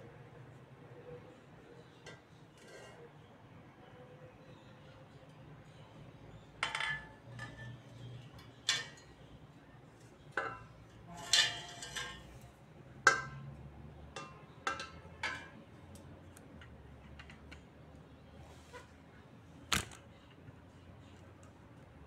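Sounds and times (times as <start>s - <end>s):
metal tubes knocking together: 13.1s - 13.5s, 14.1s - 15.6s.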